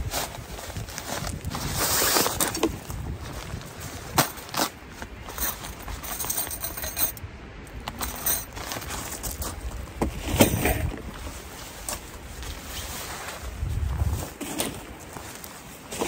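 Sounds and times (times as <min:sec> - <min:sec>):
metal poles clinking and rattling: 0:04.1 - 0:07.2, 0:07.8 - 0:09.5
fabric rustling: 0:10.2 - 0:16.0.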